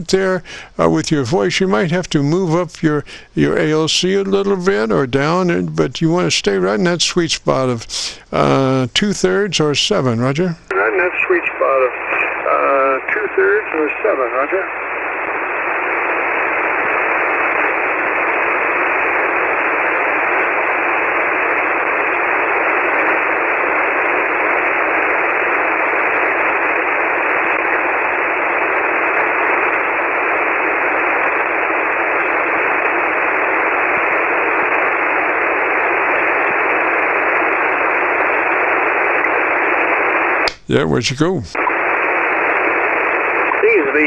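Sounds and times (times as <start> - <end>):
radio receiver static hiss: 0.0 - 44.0.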